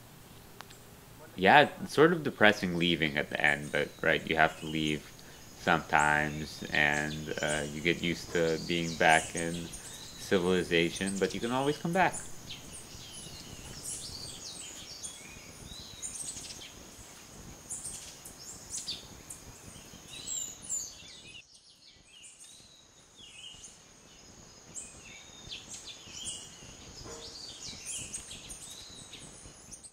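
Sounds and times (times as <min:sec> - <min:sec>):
low background rush: 0:00.0 - 0:20.2
birds chirping: 0:00.0 - 0:29.9
high chirping calls: 0:00.4 - 0:17.1, 0:24.7 - 0:29.9.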